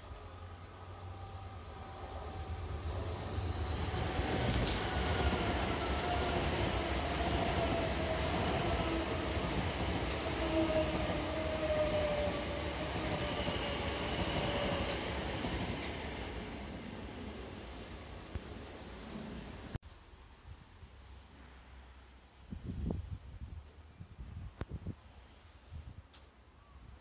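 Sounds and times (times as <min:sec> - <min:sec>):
train wheels rushing on rail: 0:00.0 - 0:19.8.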